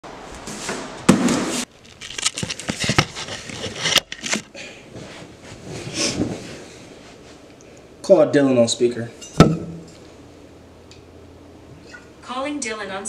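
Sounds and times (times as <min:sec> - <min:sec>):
rustling: 0:01.5 - 0:07.5
crinkling and crackling: 0:01.6 - 0:06.6.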